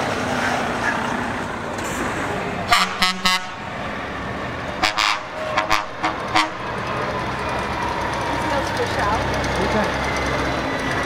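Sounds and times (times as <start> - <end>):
passing trucks: 0.0 - 11.0
truck horns tooting: 2.7 - 3.7, 4.8 - 10.2.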